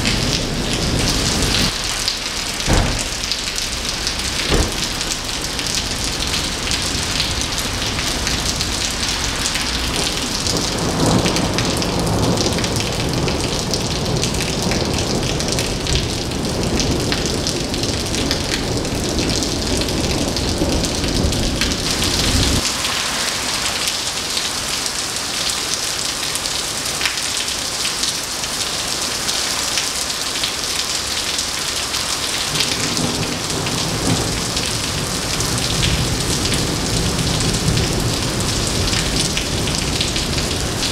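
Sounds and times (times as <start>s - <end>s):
rolling thunder rumble: 0.0s - 7.3s
heavy rain splashing on pavement: 0.0s - 40.9s.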